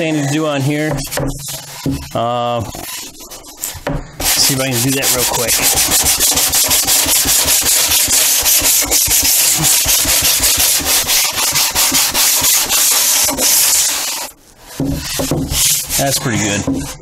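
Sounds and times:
sanding block scraping wood: 0.0 - 17.0.

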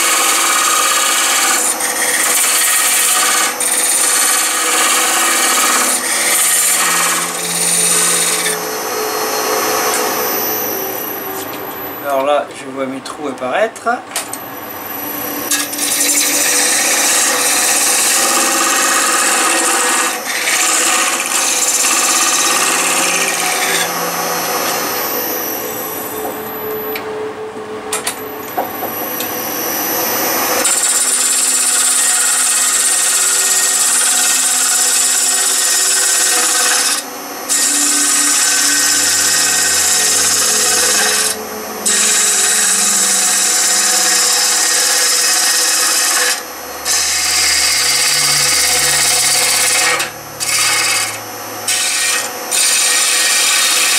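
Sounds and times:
gouge scraping wood on a lathe: 0.0 - 8.6, 15.4 - 25.2, 30.5 - 53.9.

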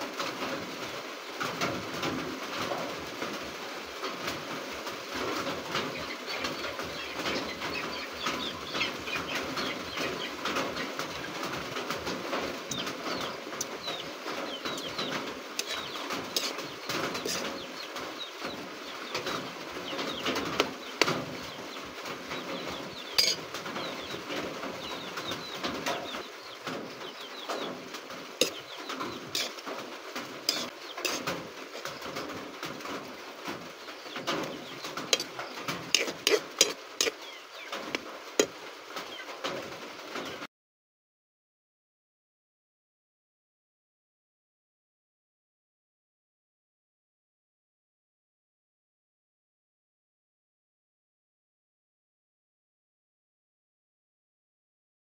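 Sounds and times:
food sizzling in a wok: 14.7 - 17.6, 23.2 - 23.6, 28.4 - 28.6, 29.2 - 29.6, 30.4 - 31.9, 35.1 - 37.2, 37.8 - 38.6
metal spatula scraping a pan: 14.7 - 17.6, 23.2 - 23.6, 28.4 - 29.6, 30.4 - 31.9, 34.3 - 38.6.

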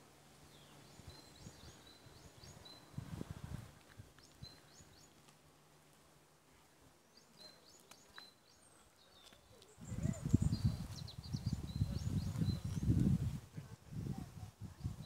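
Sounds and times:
small birds chirping: 0.2 - 5.5, 6.5 - 13.4.

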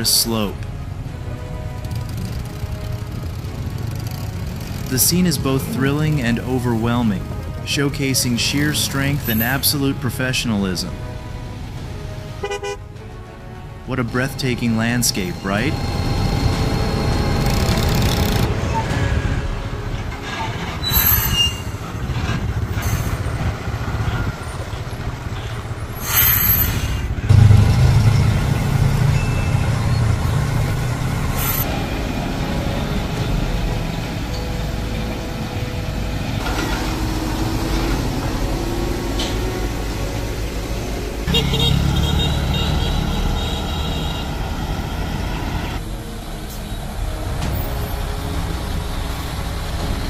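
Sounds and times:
road traffic: 0.0 - 50.0
truck diesel engine under load: 0.0 - 50.0
short sharp air hisses: 26.0 - 27.1.

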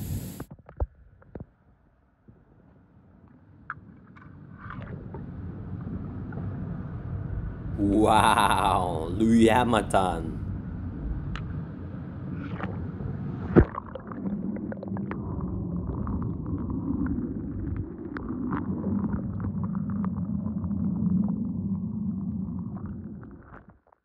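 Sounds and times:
underwater rumble and bubbles: 2.2 - 7.8, 10.4 - 24.0.

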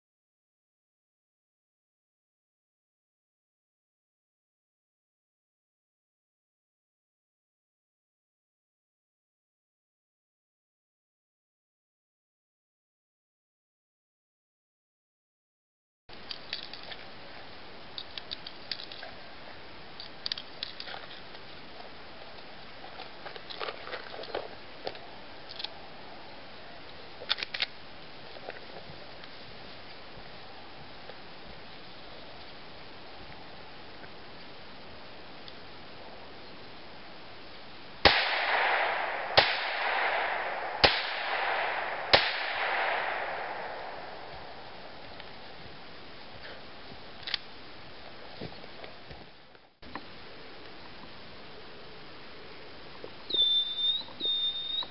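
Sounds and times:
light clicks and rustles: 16.1 - 17.2, 17.9 - 19.2, 20.0 - 25.8
steady hiss: 29.3 - 49.1
rifle shots with echo: 38.1 - 45.1.

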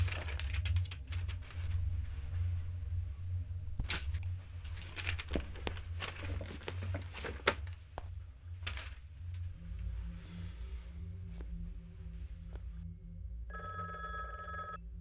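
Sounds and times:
paper rustling: 0.0 - 2.4, 3.8 - 9.5
steady low hum: 0.0 - 15.0.

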